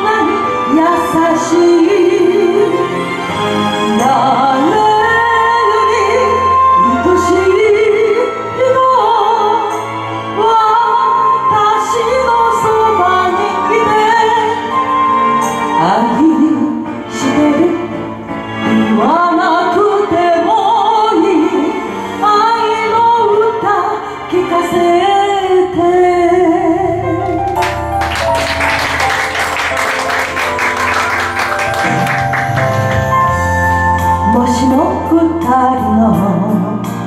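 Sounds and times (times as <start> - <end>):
woman singing ballad: 0.0 - 3.0, 3.8 - 14.8, 18.9 - 27.4, 34.2 - 37.0
karaoke backing track: 0.0 - 37.0.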